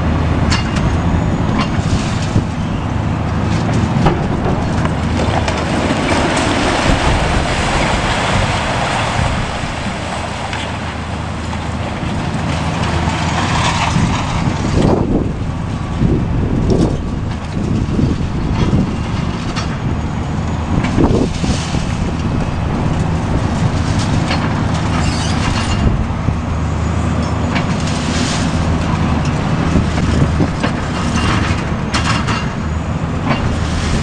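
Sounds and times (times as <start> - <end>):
excavator diesel engine running: 0.0 - 34.0
falling concrete debris clatter: 0.5 - 10.9, 11.6 - 15.4.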